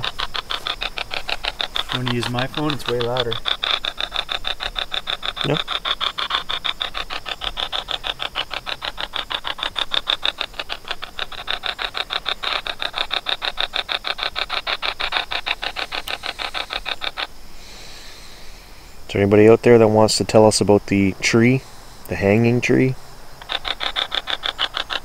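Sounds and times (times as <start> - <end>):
chopped bursts of static: 0.0 - 17.4.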